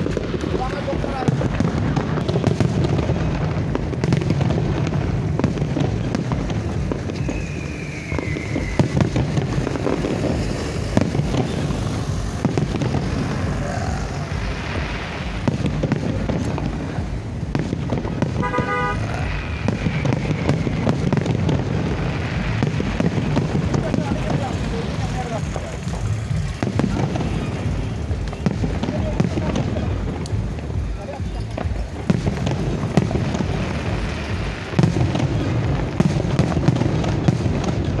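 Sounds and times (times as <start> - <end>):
fireworks bursting and crackling: 0.0 - 38.0
vehicle horn toot: 18.4 - 19.3.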